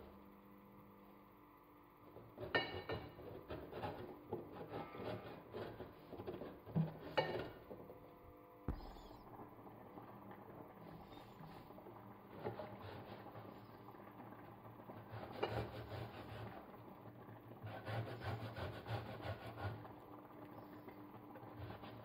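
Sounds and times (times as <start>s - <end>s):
scraping on a metal grater: 2.4s - 7.0s
thump: 8.7s - 9.1s.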